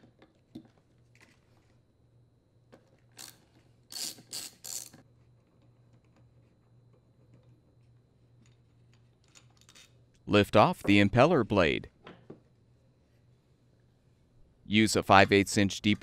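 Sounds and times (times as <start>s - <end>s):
ratchet wrench clicking: 3.2s - 5.0s.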